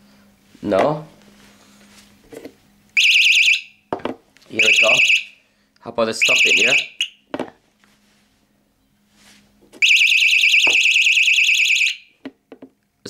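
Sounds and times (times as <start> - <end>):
warbling alarm siren: 3.0 - 3.8, 4.6 - 5.4, 6.2 - 7.2, 9.8 - 12.1.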